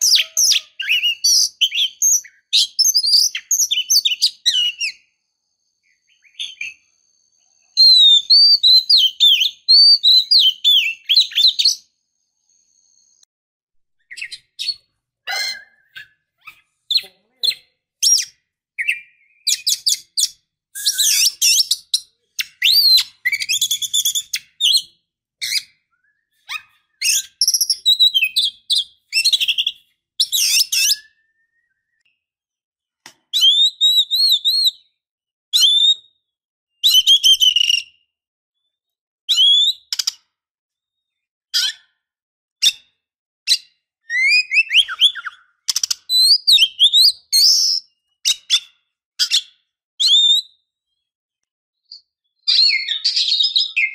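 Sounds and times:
bird singing whistles and chatter: 0.0s - 5.1s, 5.8s - 13.2s, 14.0s - 32.1s, 33.3s - 35.0s, 35.6s - 36.2s, 36.8s - 38.0s, 39.3s - 40.1s, 43.5s - 50.6s, 51.9s - 53.9s.

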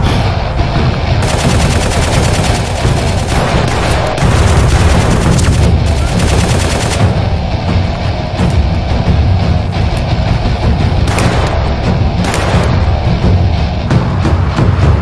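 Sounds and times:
background music: 0.0s - 15.0s
automatic gunfire: 1.2s - 7.2s, 11.1s - 13.0s.

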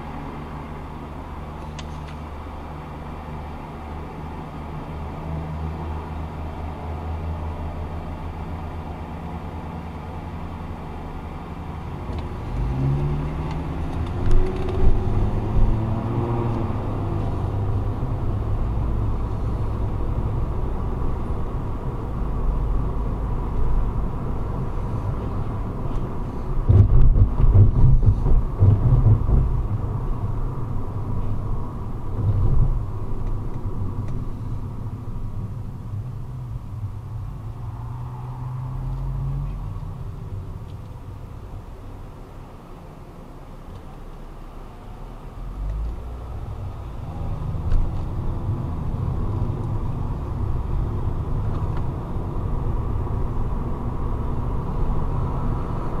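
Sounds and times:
car engine idling and accelerating: 0.0s - 56.0s
tyre road noise: 0.0s - 56.0s
low rumbling and thumps: 26.5s - 31.5s.

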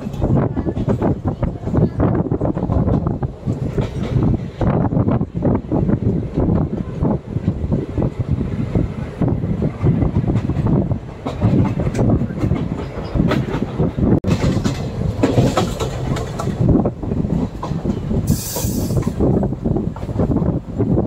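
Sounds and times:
train rumbling: 0.0s - 21.0s
wheels clicking over rails: 9.2s - 20.4s
short hiss: 18.3s - 19.2s.

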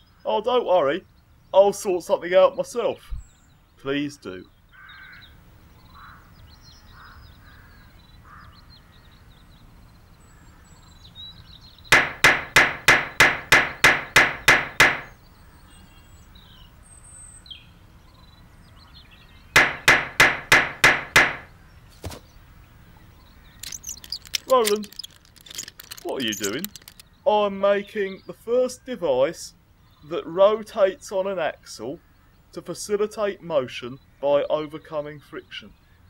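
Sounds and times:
faint birdsong: 0.0s - 36.0s
rapid hammering: 11.9s - 15.1s, 19.6s - 21.5s.

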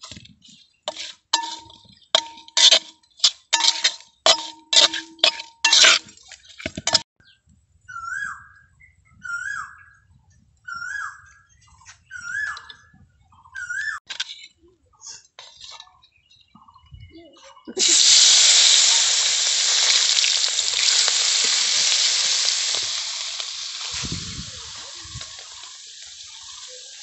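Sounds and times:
metal spatula clinking bowl: 0.9s - 7.0s.

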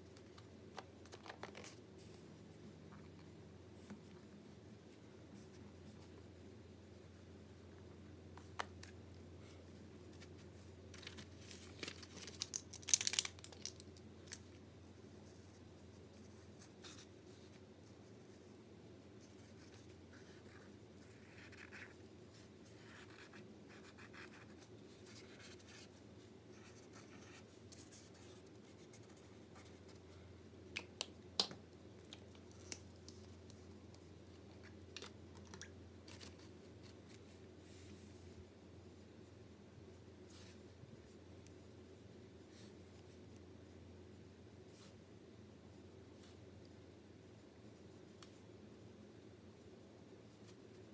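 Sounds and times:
low steady hum: 0.0s - 50.9s
marker scratching on paper: 22.7s - 25.9s.

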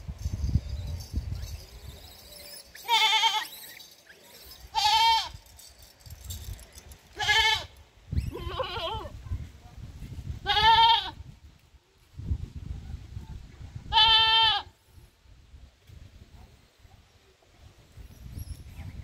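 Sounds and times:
goat bleating: 2.8s - 3.6s, 4.7s - 5.4s, 7.2s - 7.7s, 8.3s - 9.1s, 10.5s - 11.2s, 13.9s - 14.7s.

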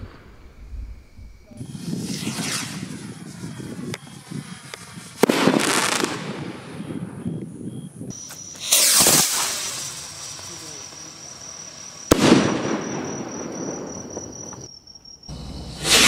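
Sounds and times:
firework crackling: 0.0s - 7.2s, 8.1s - 14.7s, 15.3s - 16.0s
firework bangs: 0.0s - 7.4s, 8.1s - 14.7s, 15.3s - 16.0s
sharp pops: 8.3s - 11.0s.

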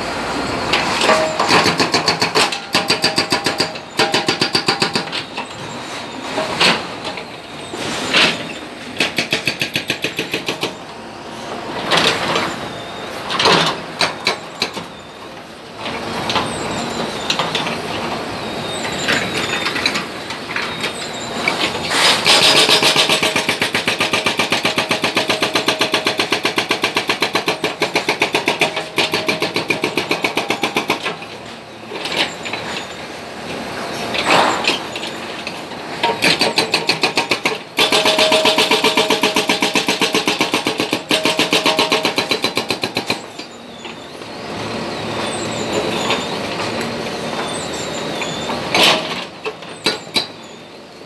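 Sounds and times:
hydraulic breaker hammering concrete: 1.1s - 5.2s, 22.1s - 31.2s, 36.0s - 43.4s.

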